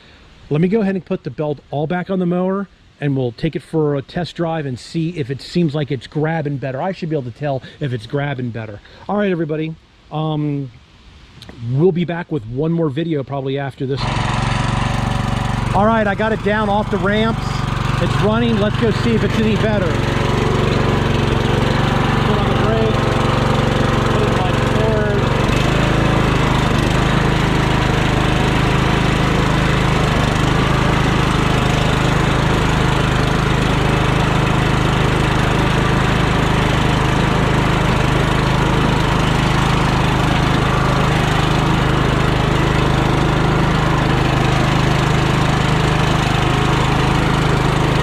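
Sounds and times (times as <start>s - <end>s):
lawn tractor engine running: 13.9s - 48.0s.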